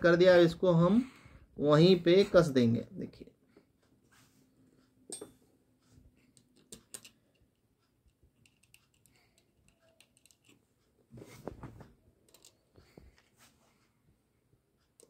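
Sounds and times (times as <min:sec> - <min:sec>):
fingers clicking and tapping fittings: 0:06.2 - 0:11.0, 0:12.2 - 0:13.3.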